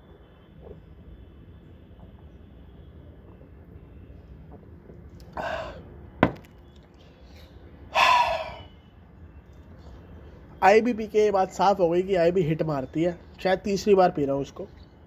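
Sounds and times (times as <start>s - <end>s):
man exhaling harshly: 5.4s - 5.8s, 7.9s - 8.7s.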